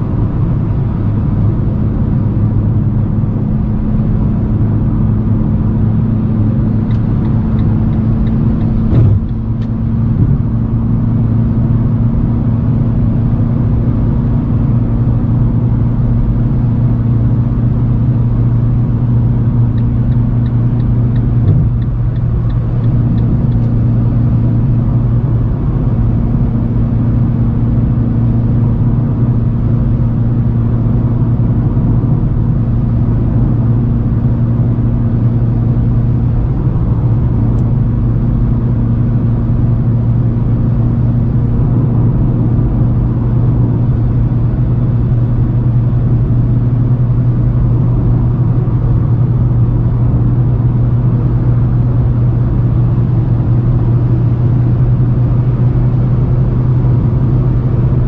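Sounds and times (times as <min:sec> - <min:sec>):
car engine droning in cabin: 0:00.0 - 0:58.0
tyre and road noise: 0:03.4 - 0:11.3, 0:18.0 - 0:26.2.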